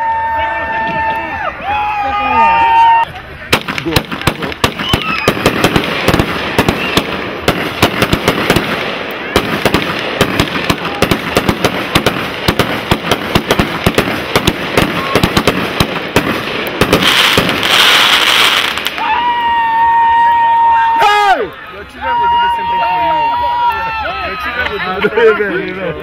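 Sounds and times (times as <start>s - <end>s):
firework fountain crackling: 2.6s - 23.7s
firework hiss: 3.5s - 19.1s.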